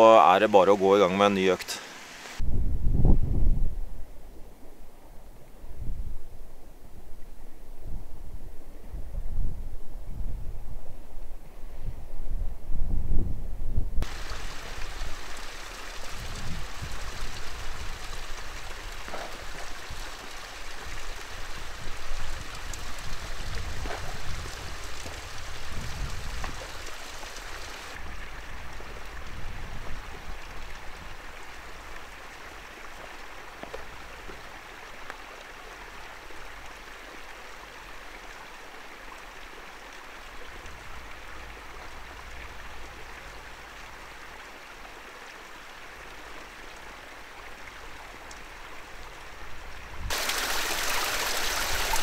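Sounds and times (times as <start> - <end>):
water rushing over rocks: 0.0 - 2.4, 14.0 - 29.1, 50.1 - 52.0
wind rumbling on microphone: 2.4 - 31.9.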